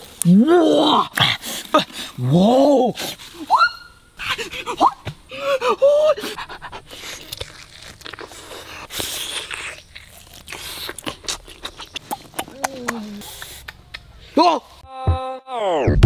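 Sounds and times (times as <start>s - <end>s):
heavy breathing: 4.2s - 7.3s
man biting and chewing: 6.2s - 14.1s.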